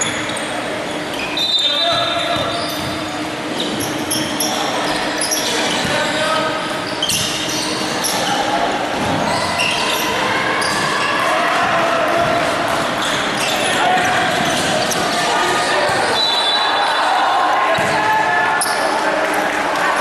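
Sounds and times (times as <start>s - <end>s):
sneakers squeaking on hardwood: 0.0s - 8.4s, 12.2s - 16.4s
basketball bouncing: 2.0s - 3.0s.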